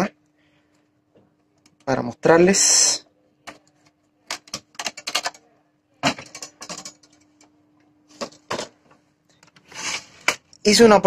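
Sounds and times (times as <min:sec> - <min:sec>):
faint steady hum: 0:00.0 - 0:11.0
parts clattering: 0:06.0 - 0:07.5, 0:08.1 - 0:10.5.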